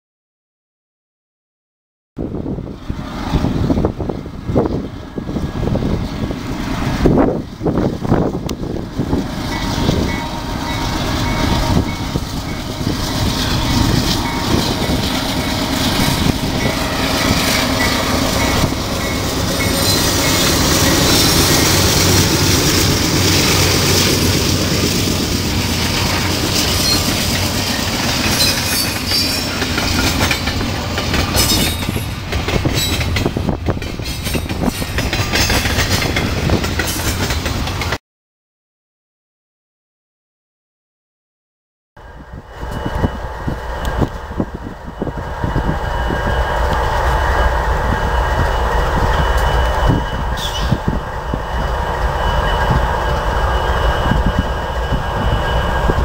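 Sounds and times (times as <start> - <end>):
locomotive rumbling past: 2.2 - 38.0, 42.0 - 56.0
train wheels clattering over rail joints: 13.0 - 38.0.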